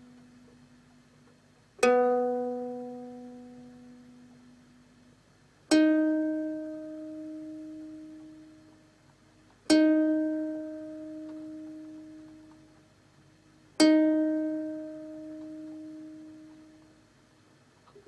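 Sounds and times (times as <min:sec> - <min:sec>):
ukulele string plucked: 0:01.8 - 0:04.6, 0:05.7 - 0:08.9, 0:09.6 - 0:12.8, 0:13.8 - 0:17.0.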